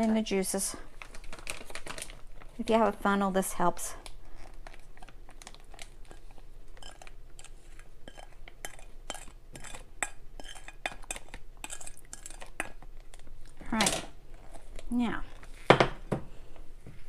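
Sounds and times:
plastic bag handling: 0.9 - 3.0.

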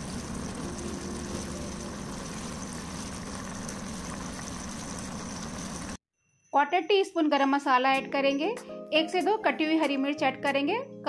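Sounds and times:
kitchen machine humming: 0.0 - 6.0.

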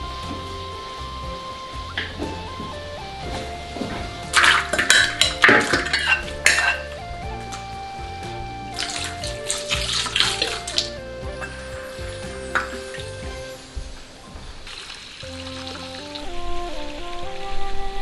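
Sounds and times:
gentle instrumental music: 0.0 - 18.0
food clattering into wok: 4.3 - 7.0.

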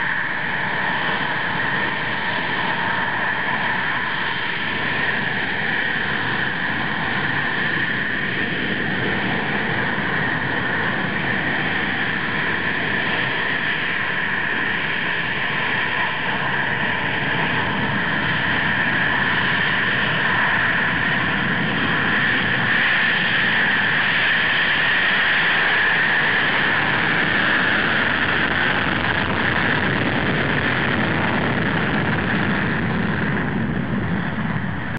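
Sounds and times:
jet engines roaring at take-off: 0.0 - 34.9.

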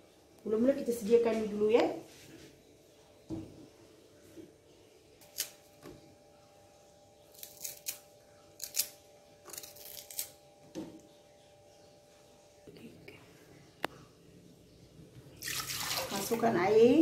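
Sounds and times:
faint steady hum: 0.0 - 17.0
knife cutting lemongrass: 7.3 - 8.0.

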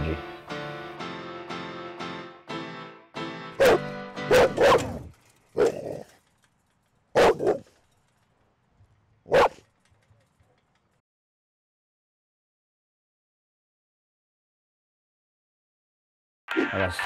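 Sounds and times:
dog barking: 3.6 - 6.0, 7.1 - 7.7, 9.3 - 9.6.

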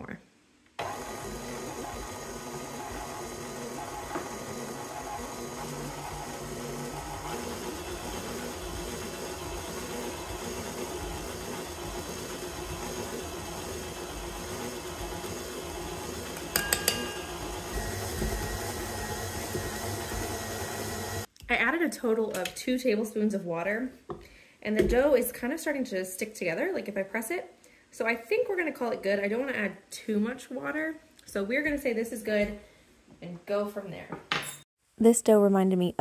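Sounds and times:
stand mixer churning dough: 0.8 - 21.3.

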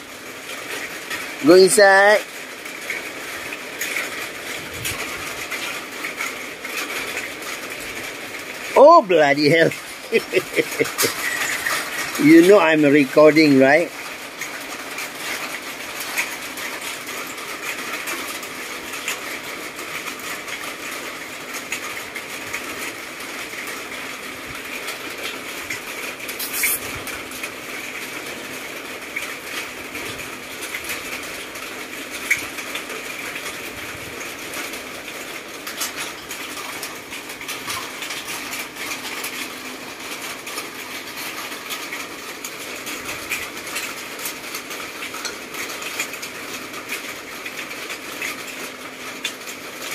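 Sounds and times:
rain falling on a roof: 0.0 - 49.9
sharp rattle: 10.8 - 12.2.

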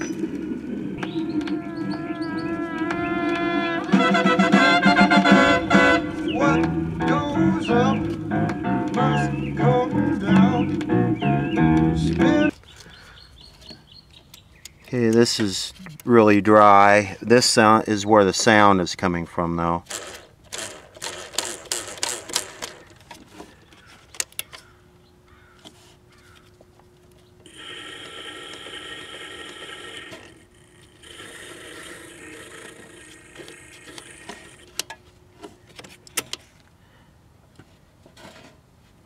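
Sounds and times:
idler wheel whirring: 0.0 - 12.6, 27.2 - 35.0
motor hum: 0.0 - 12.6, 19.8 - 23.9, 26.8 - 36.2.

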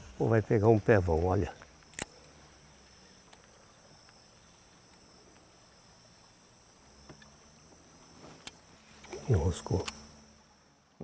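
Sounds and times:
high-pitched insect chirring: 0.2 - 10.8
light clicks: 1.6 - 2.2.

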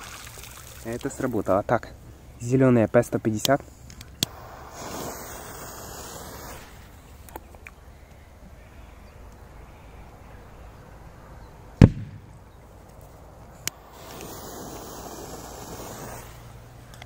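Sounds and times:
firecracker fuse hissing: 4.2 - 7.1, 13.7 - 16.8
firecracker bang: 11.8 - 12.3.

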